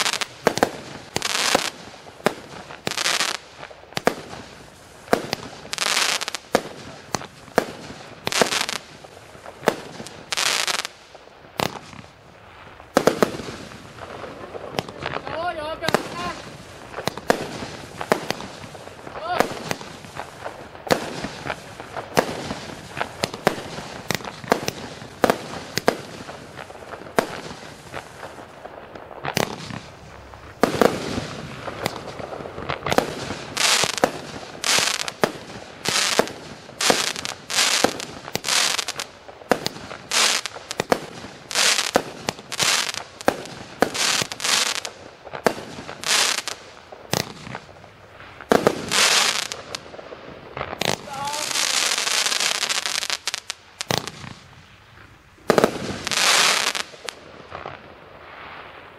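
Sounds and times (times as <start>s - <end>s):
fireworks launching and bursting: 0.0s - 58.9s.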